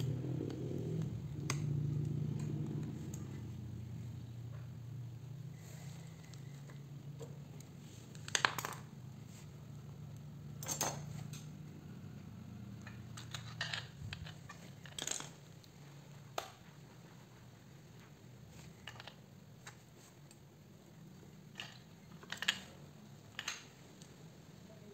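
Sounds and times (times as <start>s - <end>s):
low steady hum: 0.0s - 24.9s
metal tools tapping and scraping: 10.6s - 11.5s.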